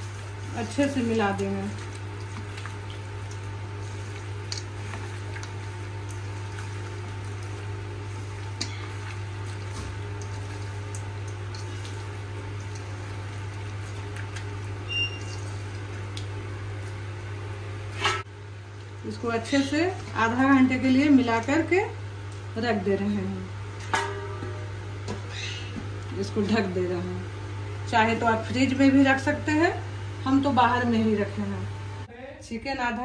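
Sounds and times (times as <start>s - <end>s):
soft clicks of mixing: 0.0s - 17.3s, 18.6s - 22.6s
steady low hum: 0.0s - 33.0s.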